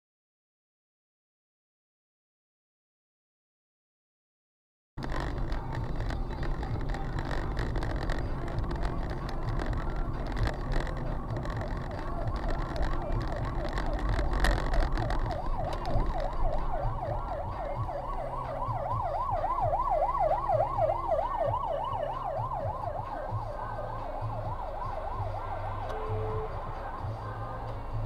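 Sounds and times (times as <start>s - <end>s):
car engine hum: 5.0s - 28.0s
road noise: 5.0s - 28.0s
police siren yelping: 7.3s - 27.2s.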